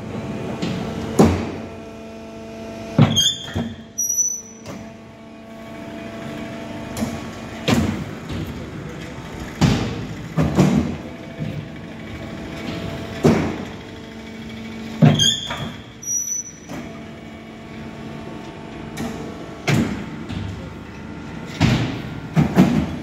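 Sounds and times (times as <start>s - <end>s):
press clanks and thuds: 0.6s - 1.6s, 6.9s - 8.6s, 9.6s - 11.7s, 12.6s - 13.8s, 15.0s - 15.9s, 18.9s - 20.7s, 21.4s - 23.0s
short high squeal: 3.1s - 4.6s, 15.1s - 16.7s.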